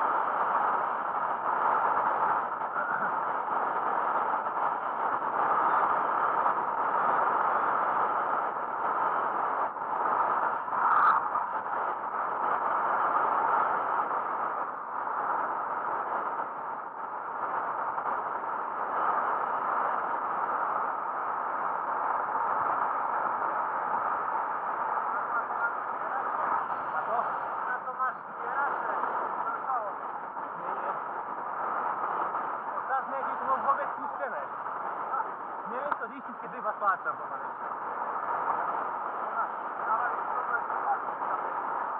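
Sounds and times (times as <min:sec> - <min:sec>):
rushing wind: 0:00.0 - 0:41.9
bicycle tyre noise: 0:09.9 - 0:12.1.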